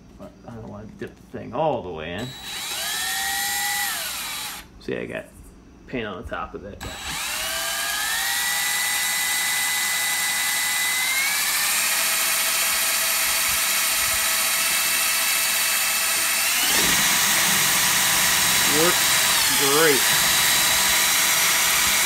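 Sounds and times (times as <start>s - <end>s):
drill motor whining: 2.2s - 4.7s, 6.8s - 22.0s.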